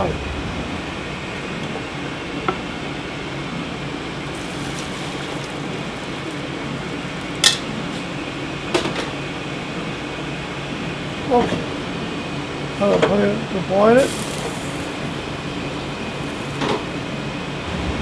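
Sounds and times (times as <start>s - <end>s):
gas range and ventilation rush: 0.0s - 18.0s.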